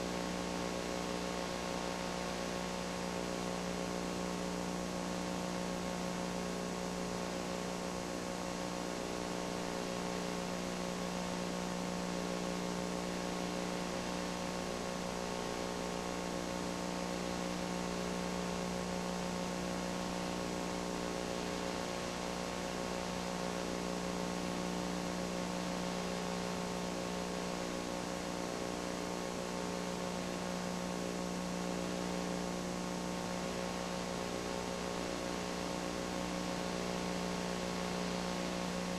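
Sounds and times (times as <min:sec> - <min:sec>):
electrical mains hum: 0:00.0 - 0:38.9.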